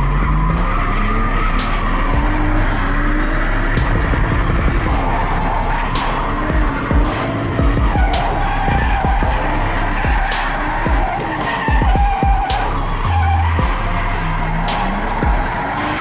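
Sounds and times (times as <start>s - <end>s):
car engine revving: 0.0s - 16.0s
tyres squealing: 0.0s - 16.0s.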